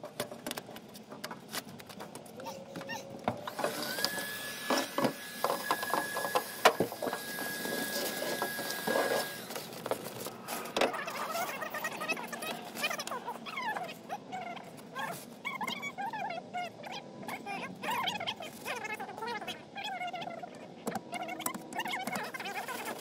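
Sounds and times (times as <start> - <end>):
power tool whining: 3.4 - 9.8.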